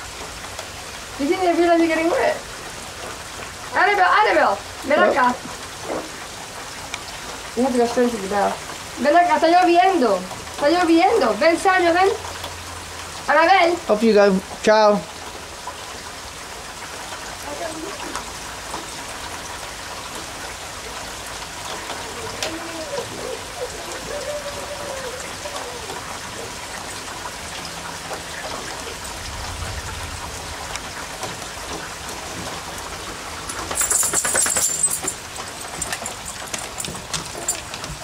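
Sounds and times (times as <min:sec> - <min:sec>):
steady rain falling: 0:00.0 - 0:38.0
child's faint voice: 0:22.0 - 0:26.0.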